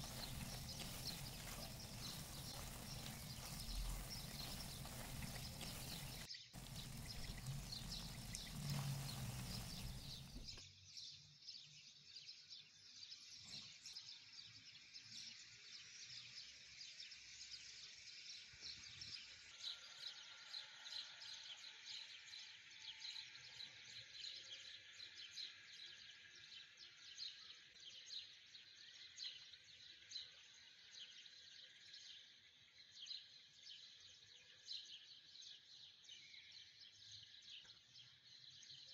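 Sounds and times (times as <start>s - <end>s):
birds chirping: 0.0s - 10.6s
pasta tossed in frying pan: 0.0s - 10.6s.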